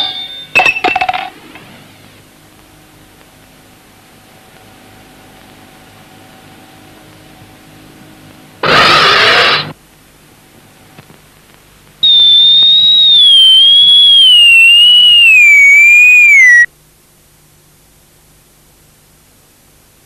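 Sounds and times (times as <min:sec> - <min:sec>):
loud noisy burst: 0:08.6 - 0:09.8, 0:12.0 - 0:16.7
cartoon whistle falling in pitch: 0:12.0 - 0:16.7.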